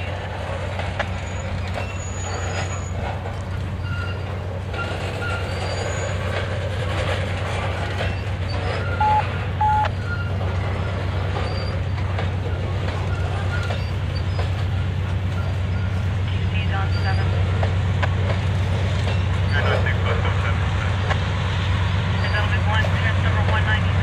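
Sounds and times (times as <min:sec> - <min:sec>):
wheel squeals: 0:00.0 - 0:17.7, 0:18.5 - 0:19.8
train cars rumbling past: 0:00.0 - 0:24.0.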